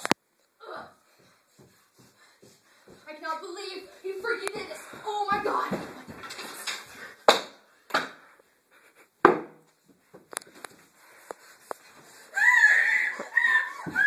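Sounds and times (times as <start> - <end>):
high wavering cry: 12.3 - 14.0.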